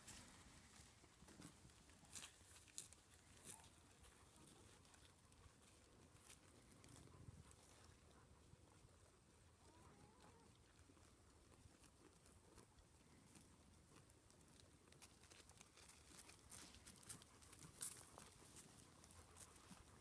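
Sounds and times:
alpacas tearing off grass: 0.0s - 5.0s.

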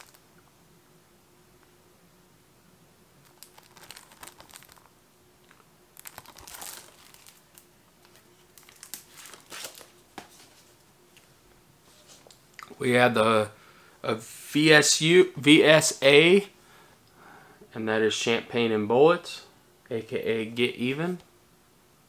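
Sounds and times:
plastic shrink wrap crinkling: 0.0s - 0.2s, 3.2s - 10.7s.

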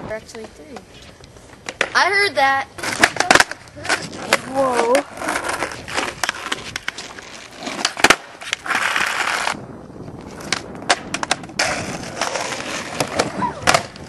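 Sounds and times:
skateboard wheels rolling on asphalt: 0.0s - 14.0s
skateboard clacking on ground: 0.1s - 9.6s, 10.2s - 14.0s.

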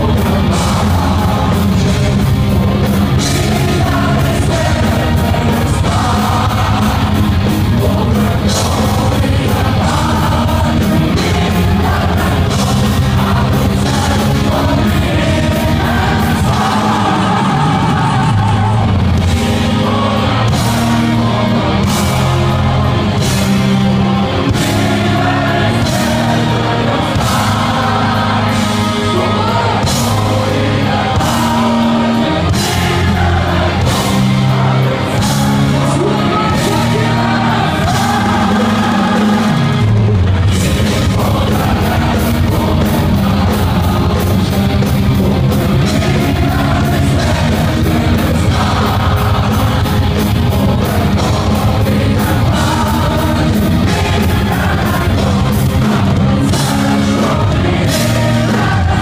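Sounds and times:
distorted electric guitar: 0.0s - 59.0s
drums keeping a steady beat: 0.0s - 59.0s
man singing: 0.0s - 59.0s.

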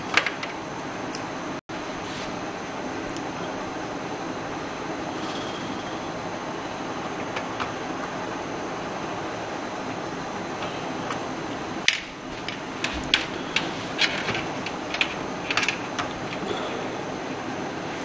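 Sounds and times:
cables and connectors clicking: 10.6s - 16.4s.

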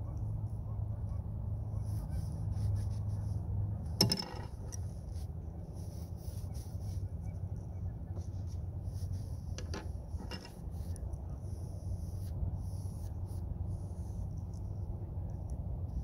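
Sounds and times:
brush scratching over canvas: 1.7s - 3.5s, 4.6s - 14.9s.

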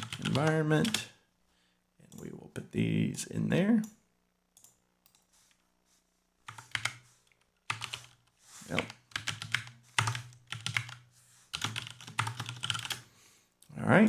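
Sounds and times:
typing on a computer keyboard: 0.0s - 1.0s, 6.5s - 7.0s, 7.6s - 13.0s.

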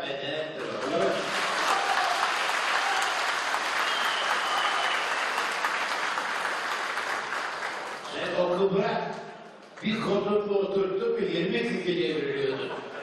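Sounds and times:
crowd clapping: 0.5s - 8.6s.

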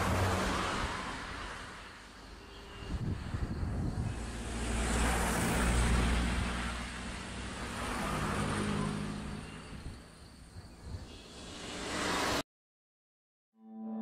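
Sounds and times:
vehicle rushing past: 3.4s - 9.5s, 11.3s - 12.4s.

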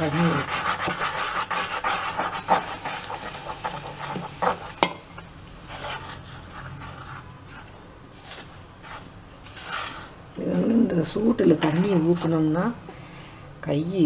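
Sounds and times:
water hissing on hot flour: 0.0s - 7.7s
spoon stirring flour in saucepan: 0.0s - 13.4s.

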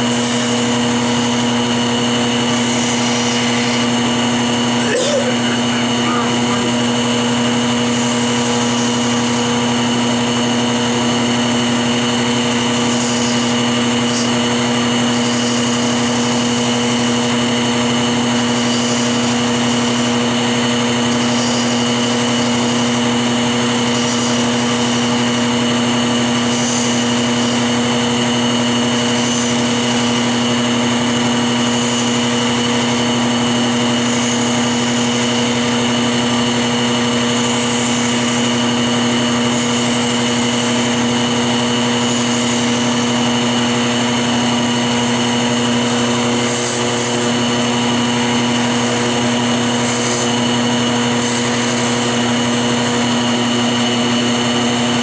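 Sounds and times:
sanding hiss on spinning wood: 0.0s - 55.0s
wood lathe motor humming: 0.0s - 55.0s.

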